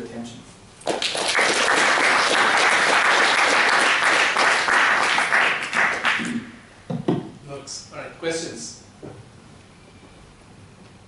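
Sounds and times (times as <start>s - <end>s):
audience applauding: 0.8s - 6.3s.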